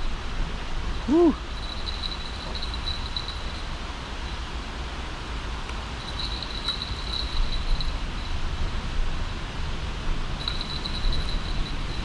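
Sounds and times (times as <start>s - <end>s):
low rumble of traffic: 0.0s - 12.0s
insect trilling: 1.1s - 3.8s.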